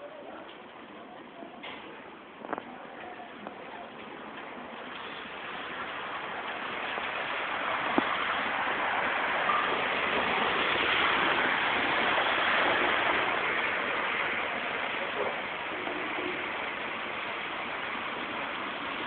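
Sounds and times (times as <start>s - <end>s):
tyres hissing through water: 4.1s - 19.0s.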